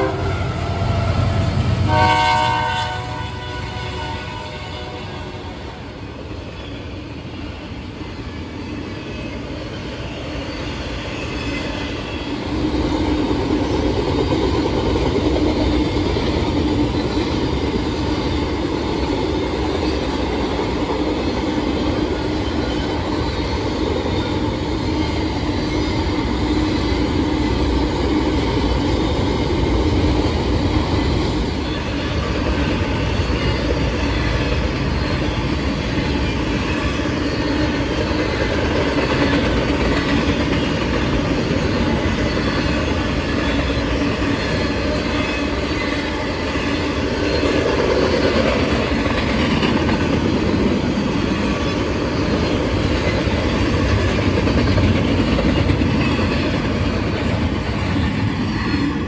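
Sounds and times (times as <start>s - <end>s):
freight train rumbling past: 0.0s - 59.0s.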